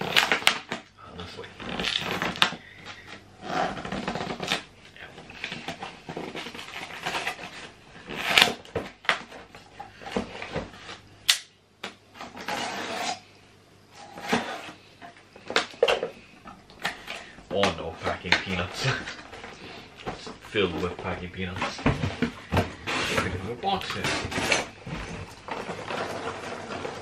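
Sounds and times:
cardboard box being torn open: 0.0s - 0.9s, 1.6s - 2.5s, 5.6s - 9.3s.

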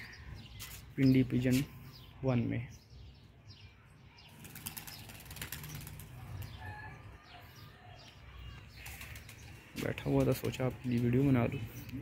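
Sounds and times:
pigeon wings flapping: 4.4s - 6.2s.

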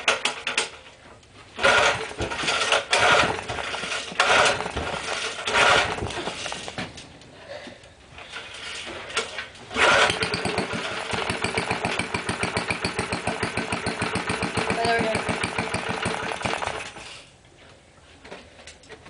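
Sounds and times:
small engine running: 9.8s - 17.2s.

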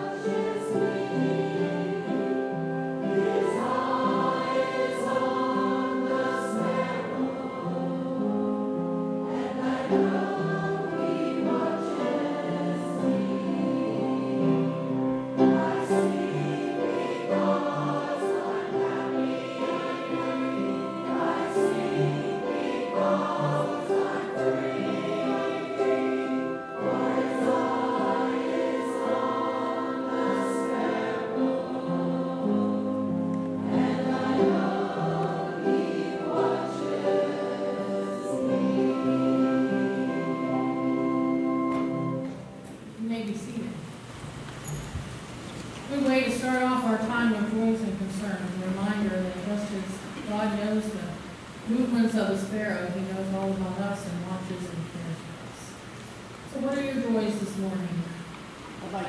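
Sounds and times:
congregation singing a hymn: 0.0s - 43.0s.

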